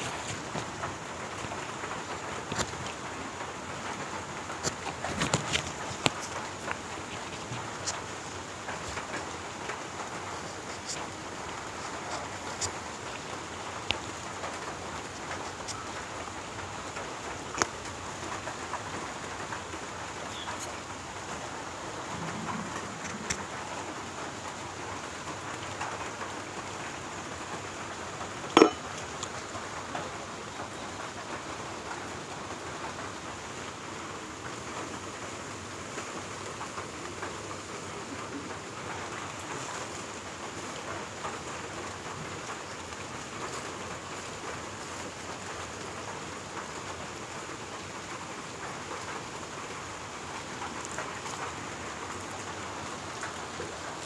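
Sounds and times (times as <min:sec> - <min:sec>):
steady rain hiss: 0:00.0 - 0:54.0
light ticks: 0:11.8 - 0:21.5.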